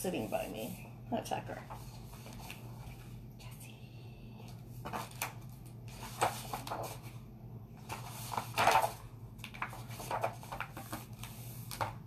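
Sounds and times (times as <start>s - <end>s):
steady low hum: 0.0s - 12.0s
paper rustling: 1.6s - 3.1s, 4.8s - 7.2s, 7.8s - 12.0s.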